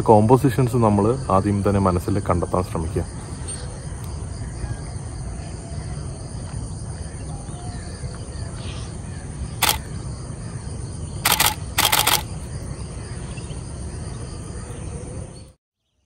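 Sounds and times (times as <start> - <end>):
insect noise: 0.0 - 16.0
camera shutter firing: 9.6 - 9.9, 11.2 - 12.3.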